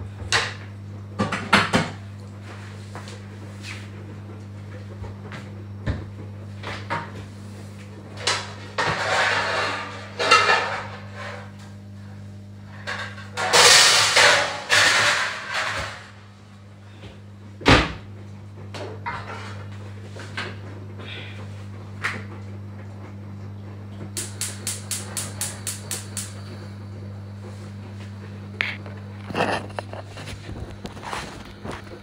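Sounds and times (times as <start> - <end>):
steady low hum: 0.0 - 32.0
kitchen rustling and clattering: 8.1 - 11.8, 12.6 - 16.3, 18.7 - 20.6, 28.7 - 32.0.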